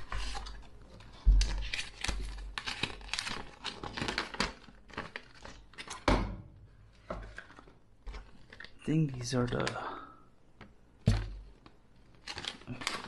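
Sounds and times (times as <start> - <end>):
paper and cardboard rustling: 0.0 - 6.1, 11.1 - 13.0.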